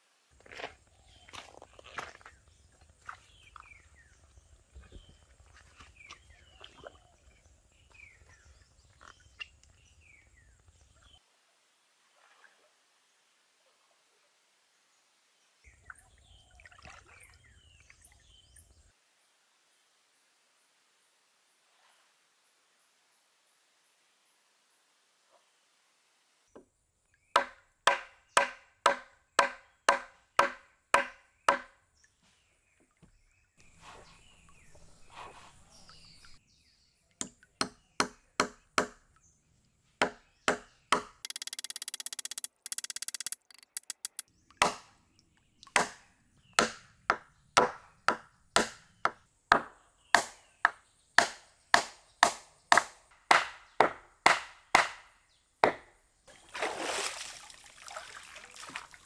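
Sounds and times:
blade chopping wood: 27.4 - 31.7, 40.0 - 44.9, 45.8 - 46.0, 46.6 - 48.8, 51.2 - 55.8.

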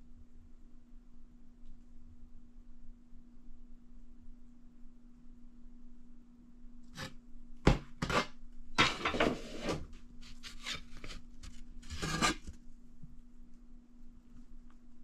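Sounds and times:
wooden sheets rubbing and clacking: 11.9 - 12.5.

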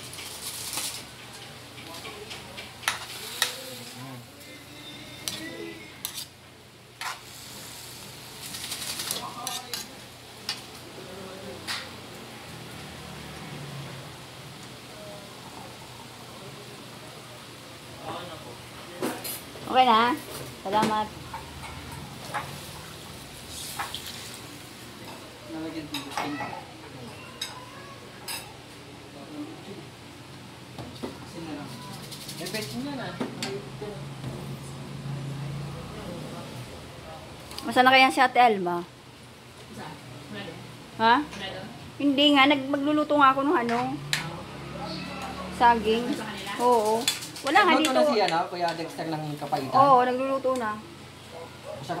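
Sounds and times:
chicken sizzling: 0.0 - 29.3, 31.0 - 36.7, 44.0 - 50.4
metal spoon scraping a pan: 2.8 - 6.4, 7.0 - 7.6, 8.5 - 9.9.

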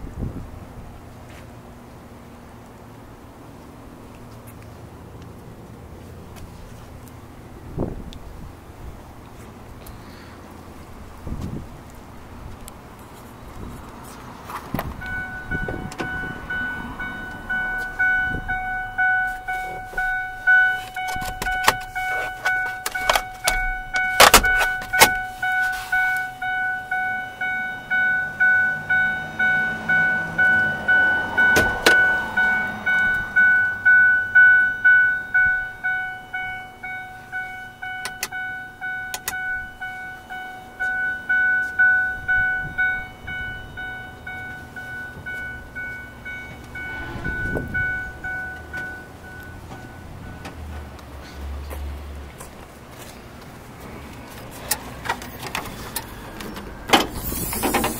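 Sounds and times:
car warning chime dinging: 15.0 - 50.8
clicks and knocks of car controls: 21.0 - 25.3, 38.0 - 38.3.

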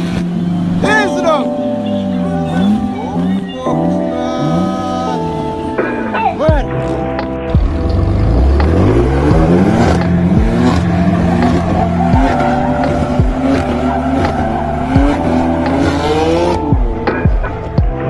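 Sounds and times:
car engine revving: 0.0 - 18.0
tyres squealing: 8.7 - 17.6.

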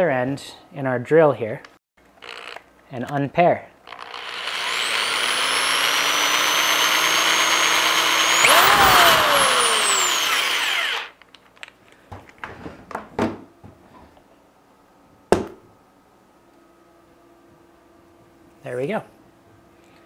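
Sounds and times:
electric drill motor whining: 3.9 - 11.2.

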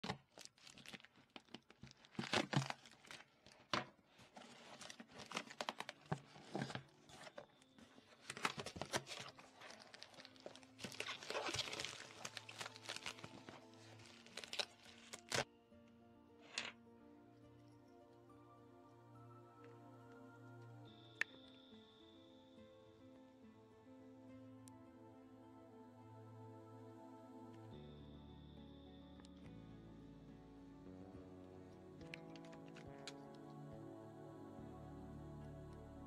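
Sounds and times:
packaging crinkling and tearing: 0.0 - 15.5, 32.0 - 33.3
soft background music: 3.8 - 36.0.

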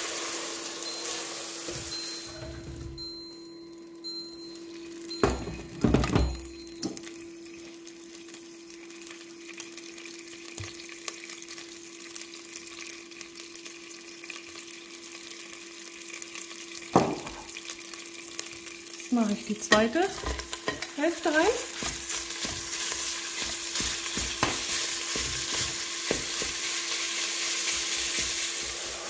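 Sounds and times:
cooker hum: 0.0 - 29.0
oil sizzling in pot: 0.0 - 29.0
pot knocking into place: 5.2 - 7.0, 17.0 - 17.4.

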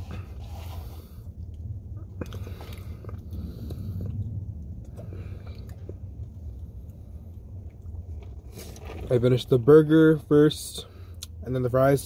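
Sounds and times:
steady low hum: 0.0 - 12.0
person chewing food: 1.2 - 9.1.

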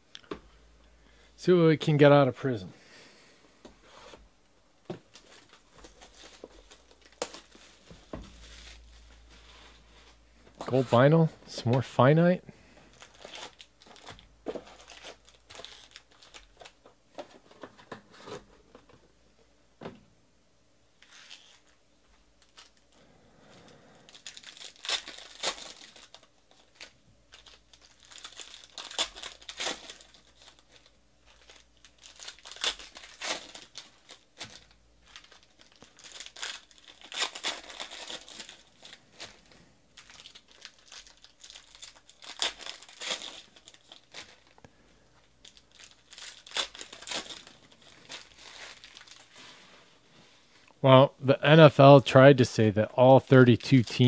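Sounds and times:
foil wrappers tearing and crinkling: 5.1 - 11.0, 12.9 - 16.8, 24.1 - 44.6, 45.4 - 49.6.

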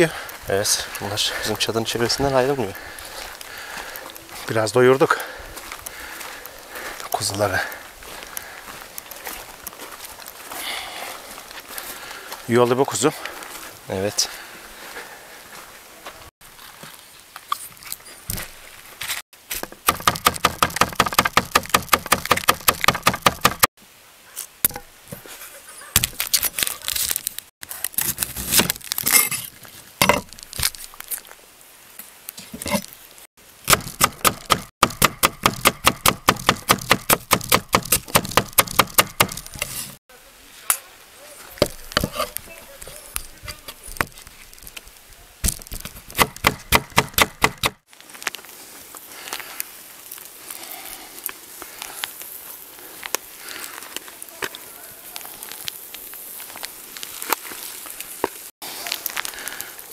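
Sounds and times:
knife chopping on wooden board: 33.7 - 39.8.

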